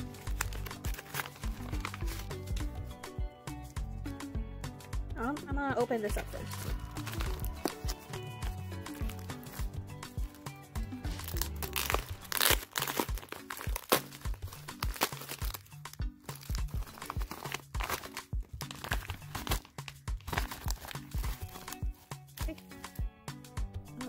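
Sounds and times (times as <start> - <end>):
padded mailer crinkling: 0.0 - 2.6, 6.3 - 22.0
background music with steady beat: 0.0 - 24.0.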